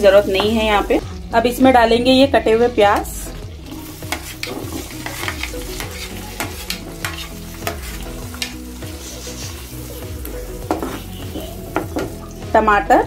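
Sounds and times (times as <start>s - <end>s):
onions sizzling in butter: 0.0s - 12.5s
spatula scraping pan: 3.6s - 12.2s.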